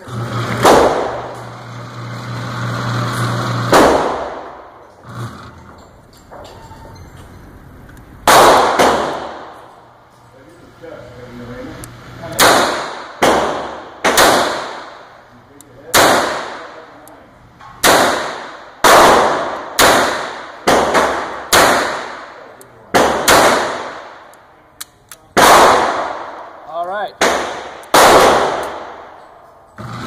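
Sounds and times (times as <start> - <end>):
gunshots with long echo: 0.6 - 1.4, 2.9 - 4.8, 8.2 - 9.7, 12.3 - 15.2, 15.9 - 17.0, 17.8 - 24.4, 25.4 - 26.6, 27.2 - 29.2.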